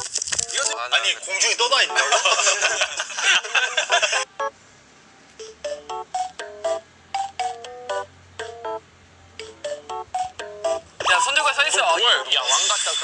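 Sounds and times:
beeping ringtone melody: 1.8 - 2.8, 3.9 - 4.6, 5.4 - 8.8, 9.4 - 12.3.

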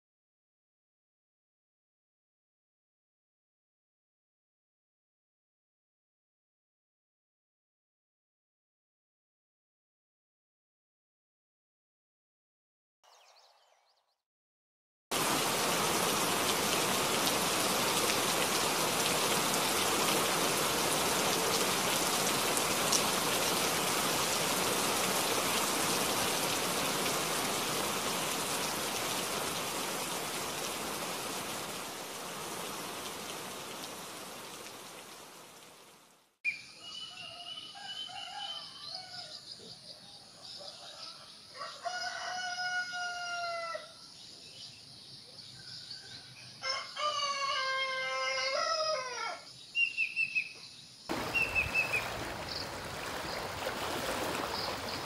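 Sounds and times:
heavy rain hissing: 15.1 - 36.1, 51.1 - 55.0
rooster crowing: 36.8 - 39.5, 40.4 - 44.0, 45.8 - 49.5
birds chirping: 49.7 - 55.0.

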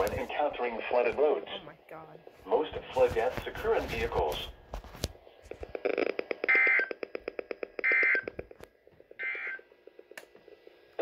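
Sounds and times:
rapid alarm beeping: 6.4 - 7.0, 7.8 - 8.3, 9.2 - 9.7.

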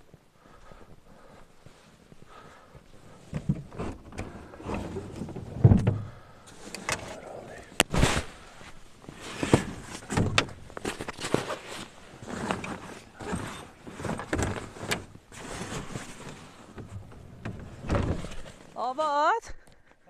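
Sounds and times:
bags and gear rustling: 6.5 - 18.9.

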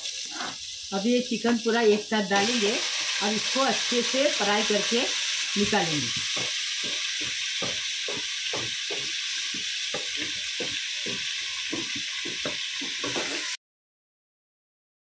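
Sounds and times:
chicken and onions sizzling in oil: 0.0 - 13.6
spatula stirring and scraping: 5.6 - 13.6.

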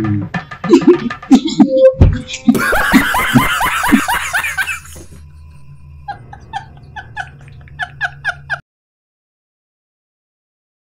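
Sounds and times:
cackling laugh sound effect: 0.6 - 5.2, 6.0 - 8.6.

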